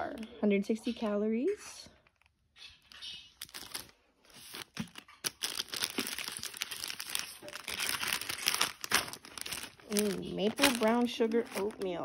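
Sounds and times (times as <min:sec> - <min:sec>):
plastic wrappers crinkling: 0:01.8 - 0:12.0
packaged food rustling against cardboard: 0:03.3 - 0:12.0.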